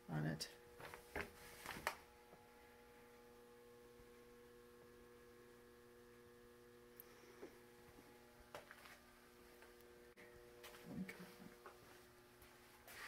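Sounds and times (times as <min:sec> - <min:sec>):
faint electrical hum: 0:00.0 - 0:13.0.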